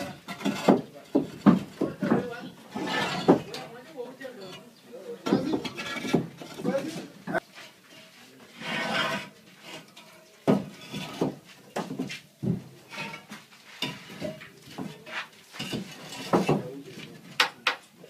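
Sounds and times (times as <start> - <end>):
hard objects knocking and clinking: 0.0 - 3.8, 5.2 - 7.1, 9.9 - 17.8.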